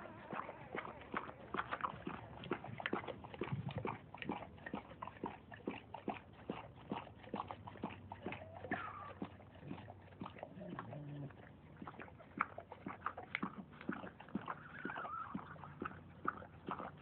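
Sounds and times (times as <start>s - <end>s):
puppies whimpering and squeaking: 14.5s - 15.9s.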